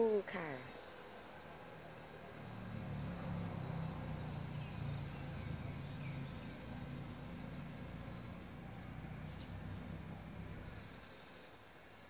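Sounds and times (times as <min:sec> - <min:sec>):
high insect whine: 0:00.0 - 0:12.0
low steady rumble: 0:01.6 - 0:10.8.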